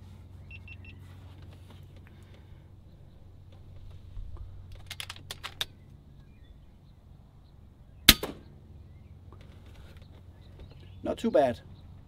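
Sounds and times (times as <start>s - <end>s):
low steady hum: 0.0s - 12.0s
faint bird chirps: 0.2s - 1.2s
air rifle mechanical clicks: 4.3s - 5.9s.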